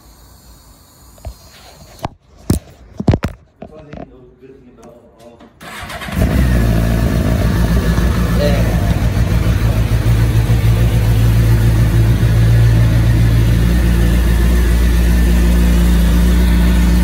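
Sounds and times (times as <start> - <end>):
motorcycle engine idling loudly: 6.2 - 17.0.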